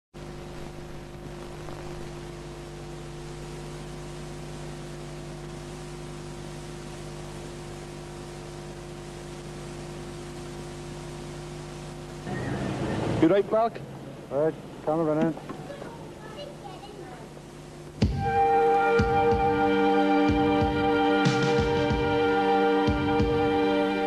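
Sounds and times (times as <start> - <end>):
electrical hum: 0.1 - 24.0
tape hiss: 0.2 - 24.0.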